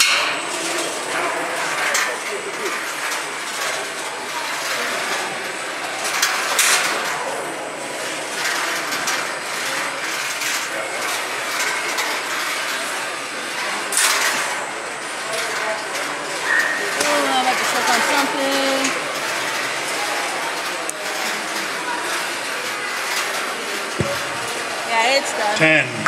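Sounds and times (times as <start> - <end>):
robots whirring and rattling: 0.5 - 25.6
sharp knocks: 24.0 - 24.5.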